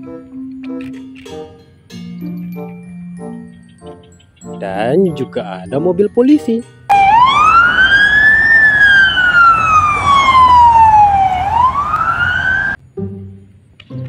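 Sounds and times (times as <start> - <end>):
police siren wailing: 6.9 - 12.8.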